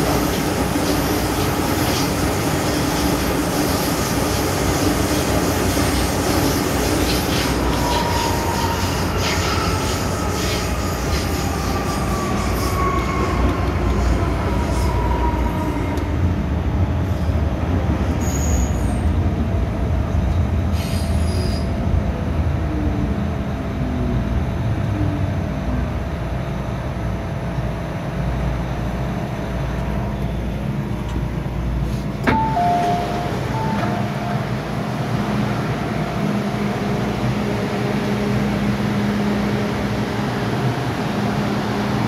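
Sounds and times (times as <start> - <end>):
standing train hum: 0.0 - 42.0
train running rumble: 0.0 - 42.0
door chime beeps: 32.3 - 34.4.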